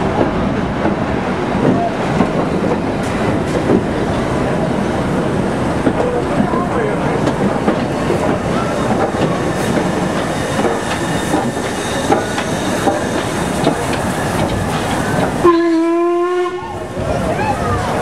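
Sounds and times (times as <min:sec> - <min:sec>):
steam locomotive rumble: 0:00.0 - 0:18.0
steam whistle blast: 0:15.4 - 0:16.7.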